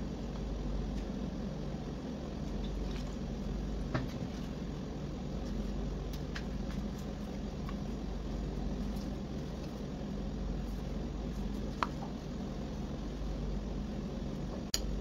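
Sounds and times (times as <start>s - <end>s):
low mechanical hum: 0.0s - 15.0s.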